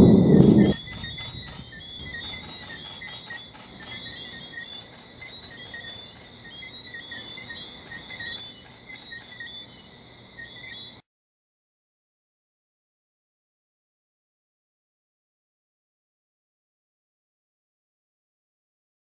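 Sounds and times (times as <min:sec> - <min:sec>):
continuous high trill: 0:00.0 - 0:11.0
night creatures chirping: 0:00.0 - 0:11.0.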